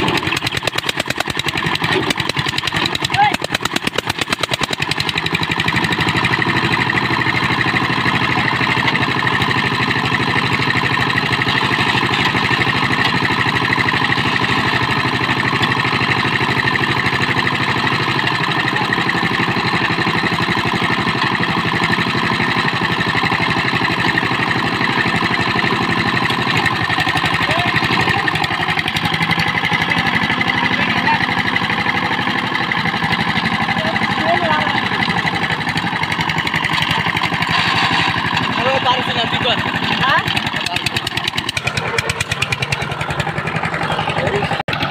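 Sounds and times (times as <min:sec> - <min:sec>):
diesel tiller engine running: 0:00.0 - 0:44.9
rotary tines churning soil: 0:32.2 - 0:42.6.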